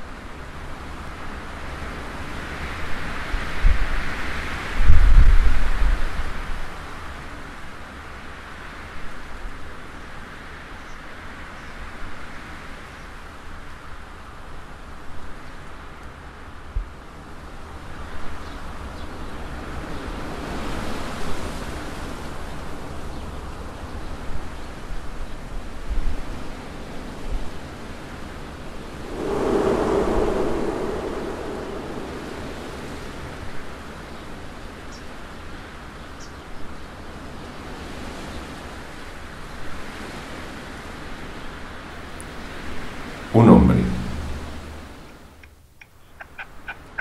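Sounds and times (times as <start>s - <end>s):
wind buffeting microphone: 28.9s - 33.8s
wind rushing: 28.9s - 34.0s, 43.4s - 45.1s.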